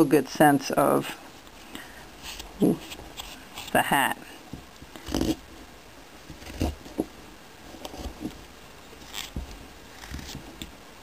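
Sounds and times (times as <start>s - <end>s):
knife carving wood: 2.2s - 3.8s, 4.9s - 5.5s, 6.3s - 7.1s, 9.0s - 10.7s.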